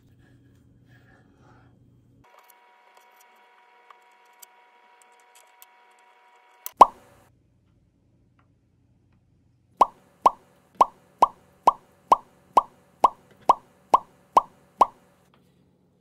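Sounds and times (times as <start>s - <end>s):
cartoon pop sound effect: 6.8s - 7.0s, 9.8s - 15.0s.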